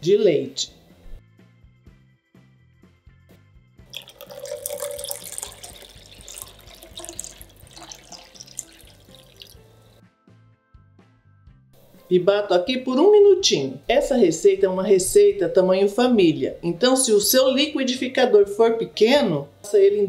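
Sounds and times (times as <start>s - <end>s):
quiet background music: 0.0s - 20.0s
milk pouring and splashing: 3.9s - 10.0s.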